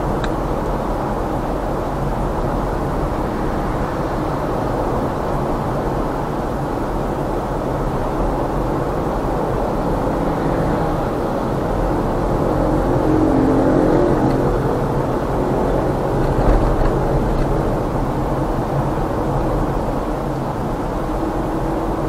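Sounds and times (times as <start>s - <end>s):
car engine and tyre noise: 0.0s - 22.0s.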